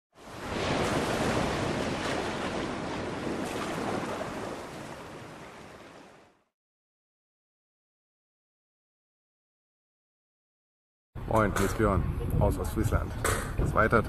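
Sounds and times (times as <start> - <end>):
sea surf rushing: 0.1 - 6.4.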